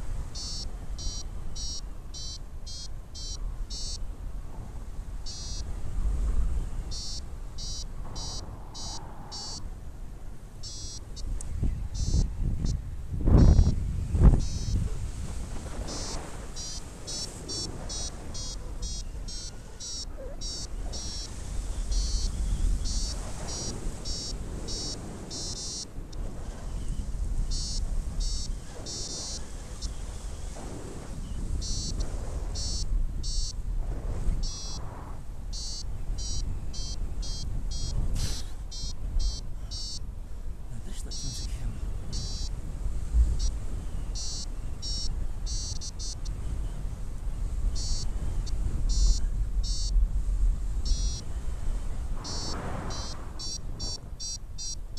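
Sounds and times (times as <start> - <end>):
wind on microphone: 0.0 - 54.9
variometer high-pitched beeps: 0.4 - 4.0, 5.2 - 5.7, 6.9 - 9.6, 10.6 - 11.3, 12.0 - 12.8, 14.4 - 14.8, 15.9 - 21.3, 21.9 - 25.9, 27.5 - 29.4, 31.6 - 32.0, 32.6 - 33.6, 34.4 - 34.8, 35.5 - 38.0, 38.7 - 40.1, 41.1 - 41.5, 42.1 - 42.6, 43.4 - 46.4, 47.8 - 48.1, 48.9 - 50.0, 50.8 - 51.3, 52.2 - 54.8.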